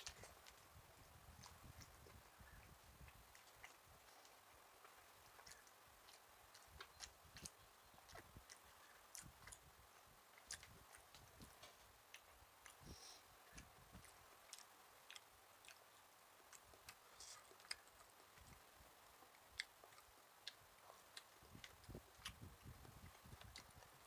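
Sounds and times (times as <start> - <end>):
person chewing and eating: 0.0 - 24.0.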